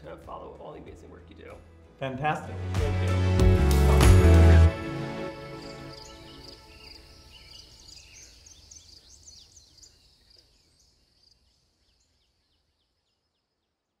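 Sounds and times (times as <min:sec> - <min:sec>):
faint rapid bird chirps: 0:05.6 - 0:14.0.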